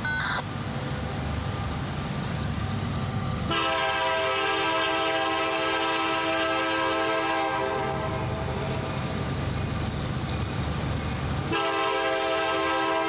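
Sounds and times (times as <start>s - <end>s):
train rumble: 0.0s - 13.0s
locomotive air horn: 3.5s - 8.6s, 11.5s - 13.0s.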